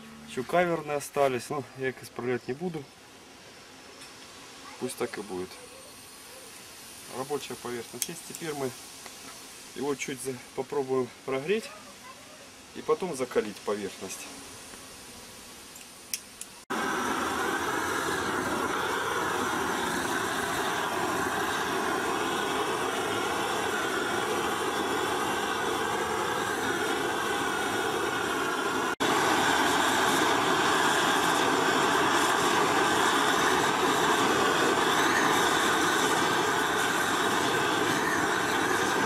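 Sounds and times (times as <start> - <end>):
gas torch roaring: 16.1 - 39.0.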